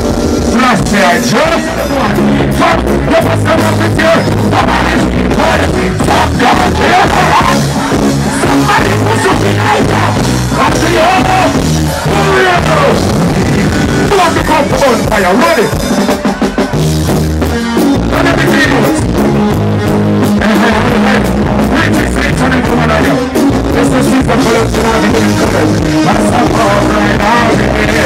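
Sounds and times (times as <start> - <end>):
live reggae band playing: 0.0 - 28.0
person singing: 0.5 - 13.1, 20.3 - 28.0.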